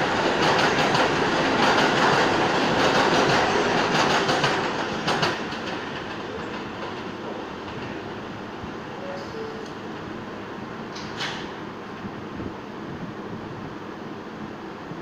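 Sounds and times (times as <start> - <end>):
subway train clattering over rail joints: 0.0 - 10.2, 10.8 - 12.5.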